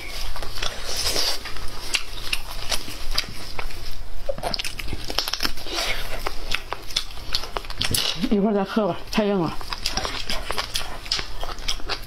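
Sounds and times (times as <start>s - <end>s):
wet chewing: 0.0s - 12.0s
meat torn from bone: 0.4s - 8.2s
crackly clicks: 4.4s - 5.6s.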